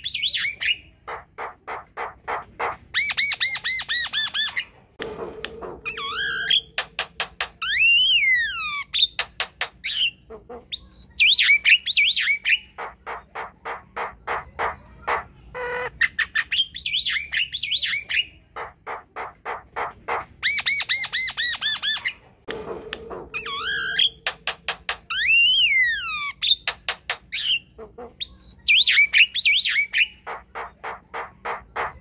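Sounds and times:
bird song with clicks and whistles: 0:05.4 - 0:12.8, 0:16.2 - 0:18.4, 0:20.4 - 0:22.2, 0:22.9 - 0:30.3.

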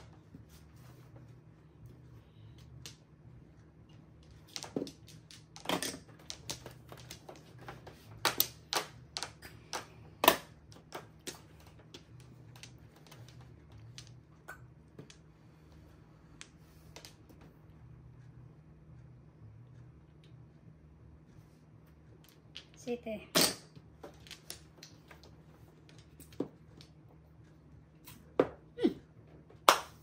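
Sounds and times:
faint low hum: 0:00.0 - 0:30.0
mahjong tiles clacking: 0:03.9 - 0:15.3.

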